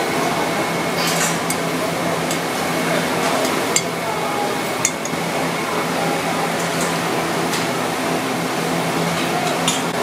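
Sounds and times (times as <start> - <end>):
kitchen hum and hiss: 0.0 - 10.0
utensil clinking on metal bowl: 4.8 - 5.2.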